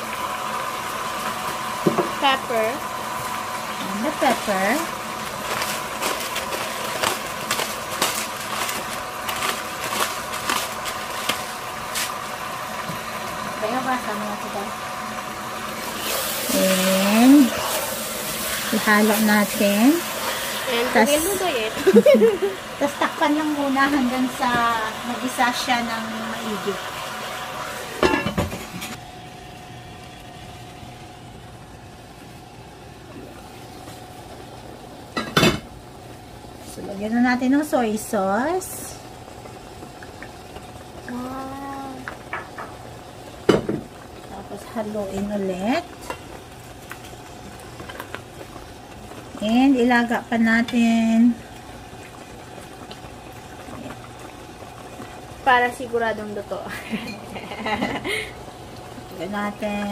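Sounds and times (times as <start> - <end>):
steady hum: 0.0 - 59.9.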